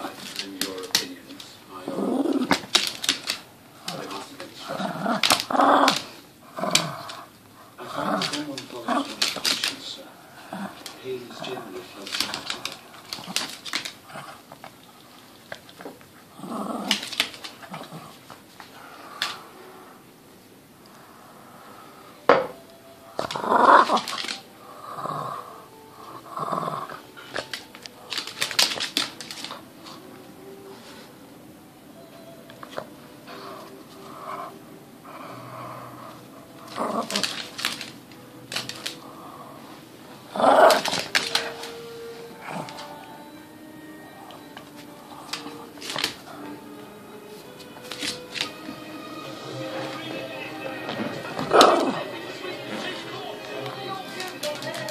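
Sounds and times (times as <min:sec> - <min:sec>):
claws clicking on hardwood floor: 0:00.0 - 0:01.5, 0:02.2 - 0:04.2, 0:08.0 - 0:09.9, 0:12.0 - 0:14.8, 0:16.7 - 0:19.4, 0:23.2 - 0:24.4, 0:27.2 - 0:29.6, 0:36.6 - 0:39.0, 0:40.4 - 0:41.7, 0:45.3 - 0:46.3, 0:53.6 - 0:54.9
dog growling: 0:01.7 - 0:14.9, 0:16.2 - 0:20.1, 0:23.2 - 0:28.1, 0:33.3 - 0:37.8, 0:38.7 - 0:43.1, 0:51.4 - 0:52.2.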